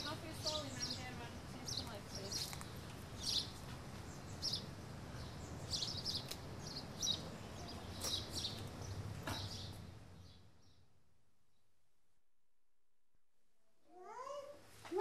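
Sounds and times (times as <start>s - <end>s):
small birds chirping: 0.0s - 11.7s.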